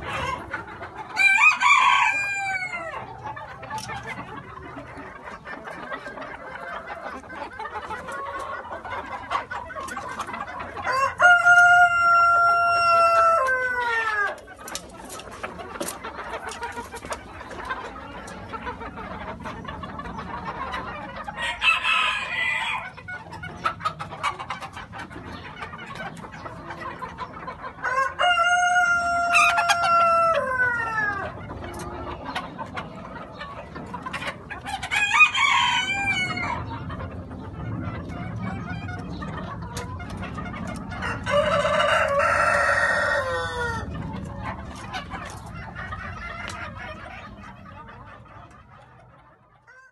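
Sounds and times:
roosters crowing: 0:00.0 - 0:18.4, 0:19.0 - 0:24.4, 0:25.4 - 0:48.1, 0:49.6 - 0:49.9
chicken squawk: 0:00.0 - 0:49.9
chickens clucking: 0:00.0 - 0:49.9.

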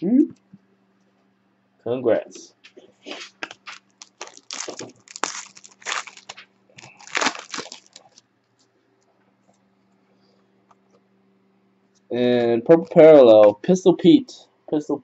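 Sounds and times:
foil wrapper tearing and crinkling: 0:03.1 - 0:08.2.

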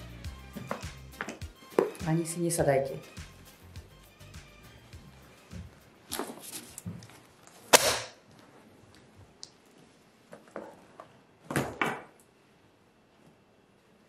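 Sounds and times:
rustling: 0:05.5 - 0:07.7.

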